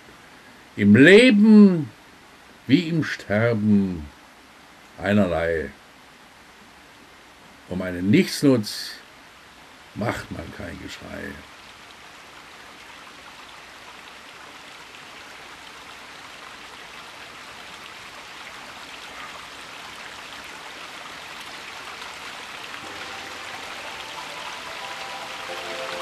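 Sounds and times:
water rushing: 9.9s - 26.0s
soft music: 22.8s - 26.0s.

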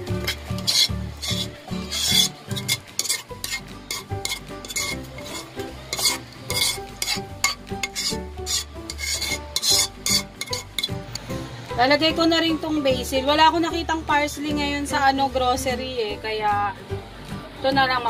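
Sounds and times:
spoon scraping a pan: 0.0s - 11.2s
spoon stirring pasta: 0.1s - 11.0s.

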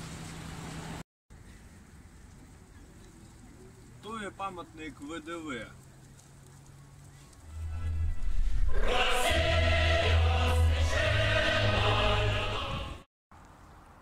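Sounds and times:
choral music with heavy bass: 7.6s - 13.1s.

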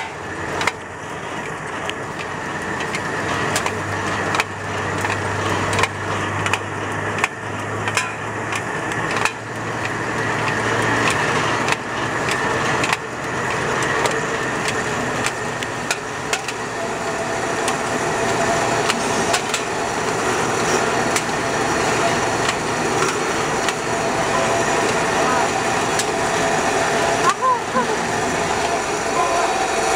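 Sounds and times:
metallic clicks and clanks: 0.0s - 16.7s
machine mechanical din: 0.0s - 29.9s.

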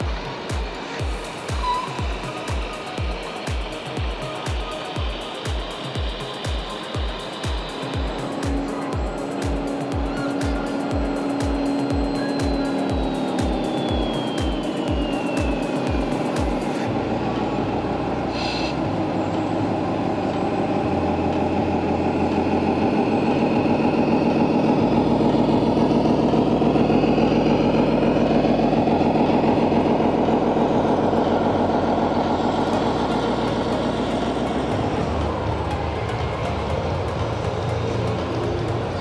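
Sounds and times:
diesel engine running: 0.0s - 39.0s.

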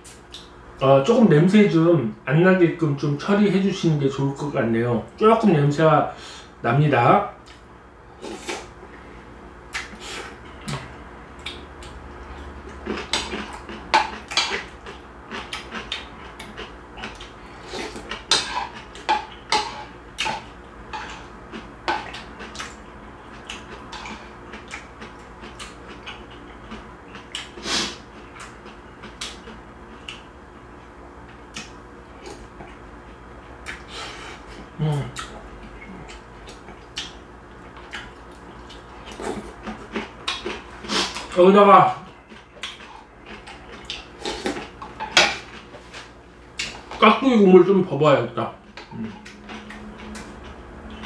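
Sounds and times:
chewing: 9.7s - 30.3s, 31.3s - 41.4s, 42.0s - 47.0s, 48.6s - 51.0s.

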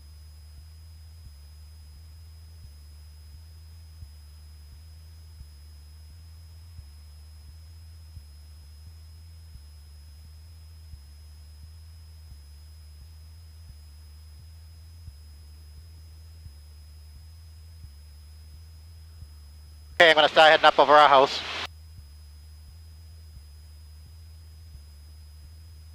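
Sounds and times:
propeller plane engine drone: 20.0s - 21.7s.

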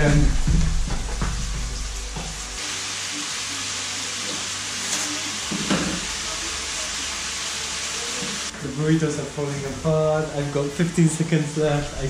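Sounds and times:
chicken sizzling in oil: 1.8s - 9.6s.

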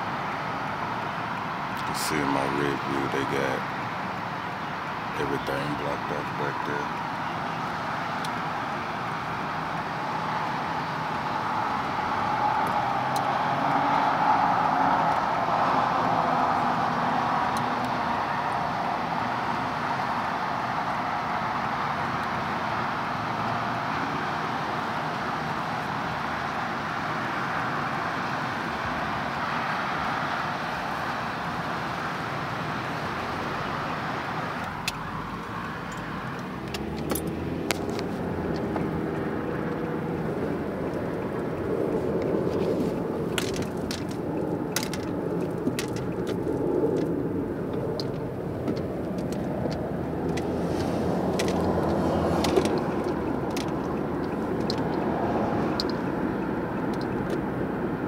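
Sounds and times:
highway traffic noise: 0.0s - 58.0s.

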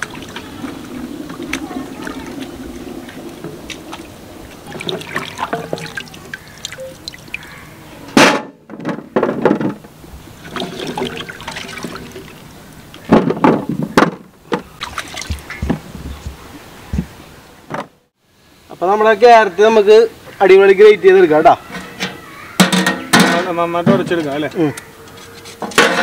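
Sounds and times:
water splashing in metal basin: 0.0s - 7.7s, 10.4s - 13.1s, 14.6s - 16.3s.

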